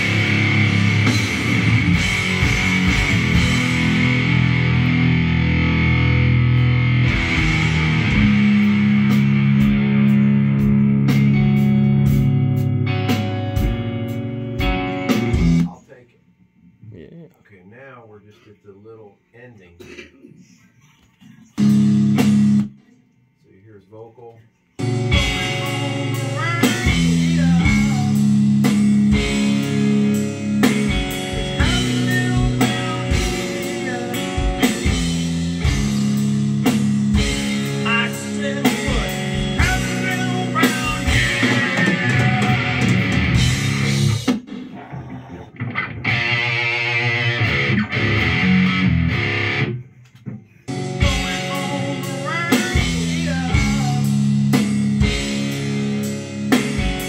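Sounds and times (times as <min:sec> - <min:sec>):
rock band playing: 0:00.0 - 0:15.7, 0:21.6 - 0:22.8, 0:24.8 - 0:57.0
wavering held guitar tone: 0:44.9 - 0:49.9.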